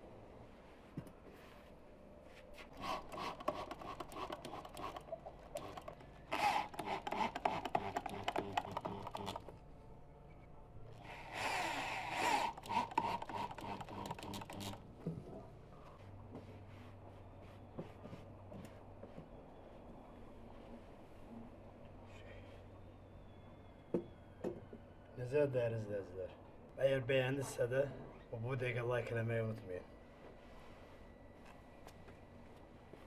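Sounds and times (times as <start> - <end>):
cordless drill driving screws: 2.7 - 9.5, 11.0 - 14.8.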